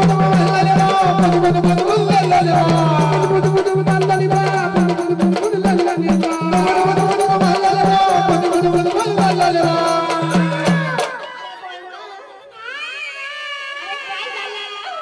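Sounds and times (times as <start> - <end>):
steady drum beat: 0.0 - 11.2
jingling percussion: 0.0 - 11.4.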